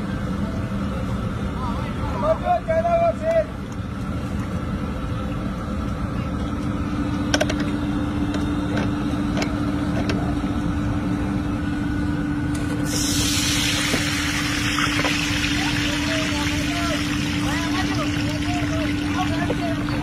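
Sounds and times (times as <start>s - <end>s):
low rumble and hum: 0.0s - 20.0s
hot oil sizzling: 12.6s - 20.0s.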